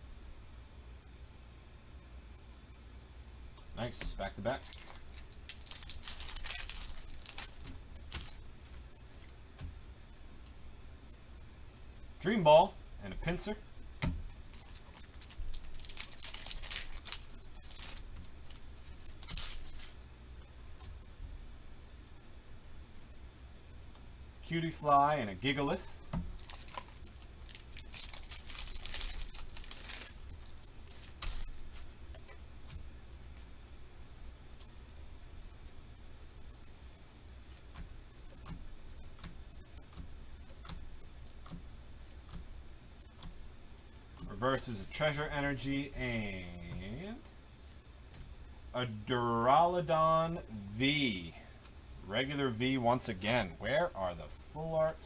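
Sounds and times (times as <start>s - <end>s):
low steady hum: 0.0s - 55.0s
foil wrapper tearing and crinkling: 4.4s - 8.4s, 14.5s - 19.9s, 26.4s - 31.9s.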